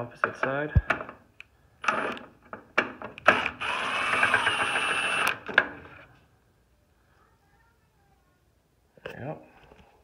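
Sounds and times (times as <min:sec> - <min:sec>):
drill whirring: 0:01.8 - 0:02.3, 0:03.2 - 0:05.5
sharp drill click: 0:03.2 - 0:05.4
drill bit clicking: 0:03.2 - 0:05.5.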